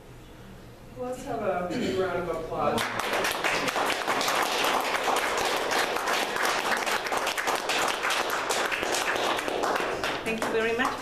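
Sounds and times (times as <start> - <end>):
people applauding: 2.8 - 11.0.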